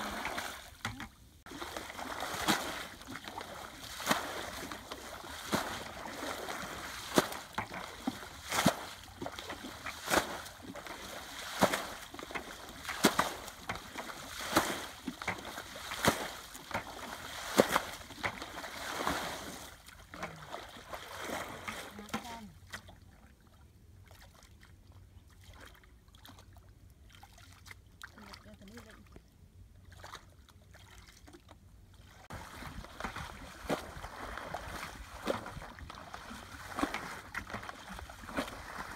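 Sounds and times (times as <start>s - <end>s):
steady wash of water: 0.0s - 22.5s, 32.2s - 38.9s
water splashing from bucket: 0.0s - 22.9s, 32.3s - 38.9s.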